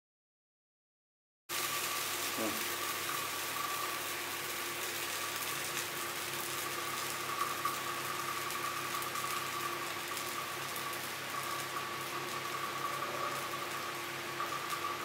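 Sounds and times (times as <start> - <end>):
mechanical hum with high whine: 1.5 - 15.0
even hiss: 1.6 - 3.2.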